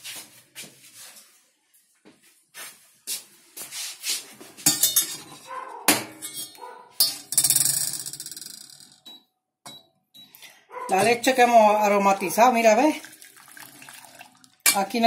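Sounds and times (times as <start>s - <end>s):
saucepan and strainer clanking: 4.6s - 7.8s, 14.6s - 15.0s.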